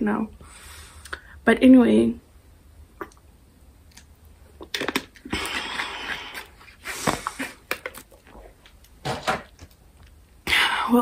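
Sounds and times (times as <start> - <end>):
breathy hiss: 0.4 - 1.4
person swallowing water: 3.0 - 3.3.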